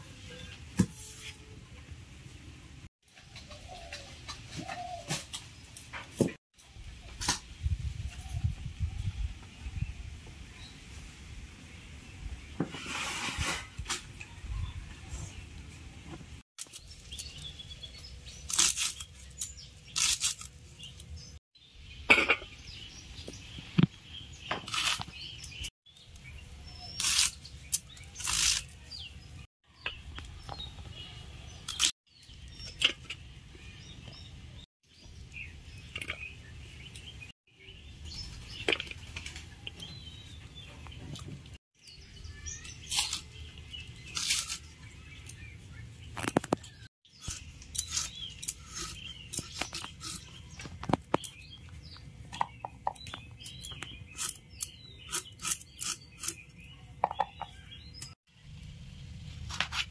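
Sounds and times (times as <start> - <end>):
birds chirping: 14.2 - 59.0
knife cutting onions: 54.1 - 56.4.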